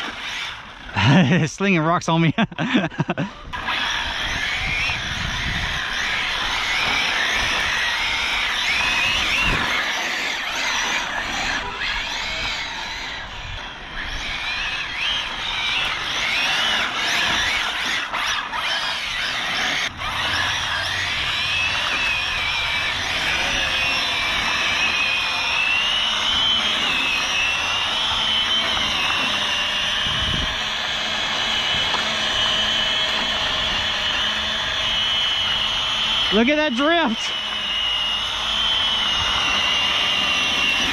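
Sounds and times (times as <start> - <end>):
electric motor whine: 0.0 - 40.9
tyre and road noise: 3.6 - 35.6.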